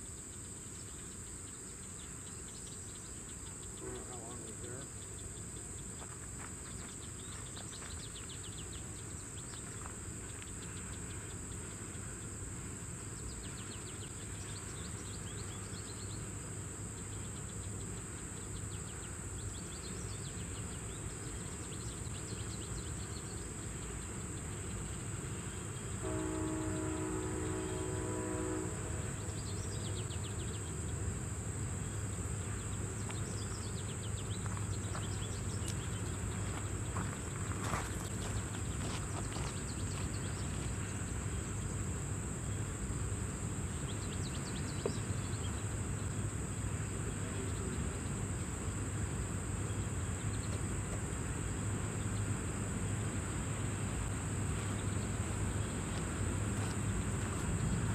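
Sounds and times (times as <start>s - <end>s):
insects buzzing: 0.0s - 57.9s
locomotive horn: 26.0s - 29.9s.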